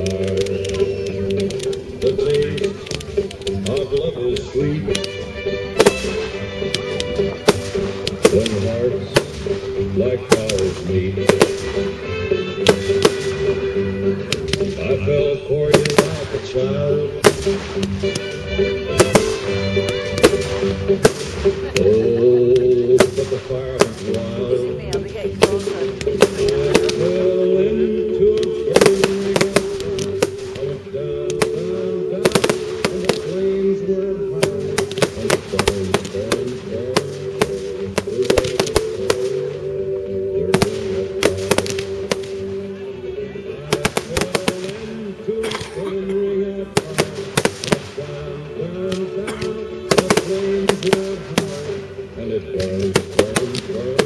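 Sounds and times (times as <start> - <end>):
firework shells bursting: 0.0 - 13.6, 15.7 - 16.5, 17.2 - 21.9, 25.4 - 27.3, 28.3 - 33.6, 34.4 - 39.6, 40.5 - 42.5, 46.8 - 48.1
music with sustained notes: 0.0 - 54.0.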